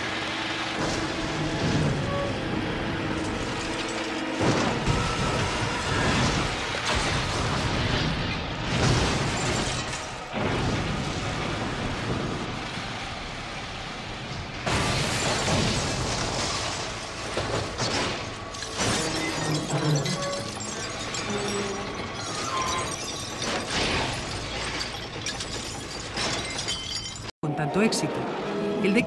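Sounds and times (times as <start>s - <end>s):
car crash impacts: 3.2s - 12.6s, 14.3s - 27.3s
glass shattering: 6.0s - 10.8s, 14.7s - 27.3s.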